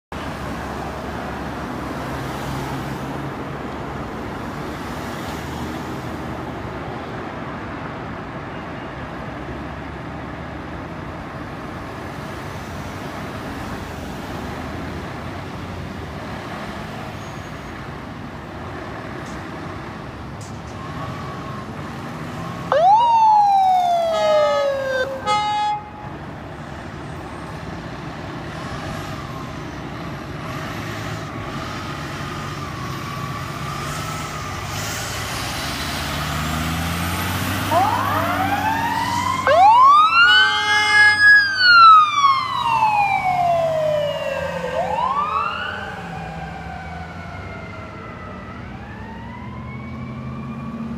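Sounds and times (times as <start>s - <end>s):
passing traffic: 0.1s - 50.9s
emergency siren whoop: 22.6s - 26.0s, 37.6s - 50.9s.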